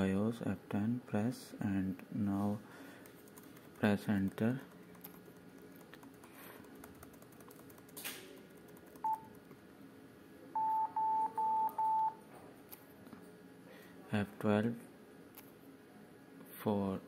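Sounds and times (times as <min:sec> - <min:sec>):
keys being pressed: 0:03.1 - 0:09.4.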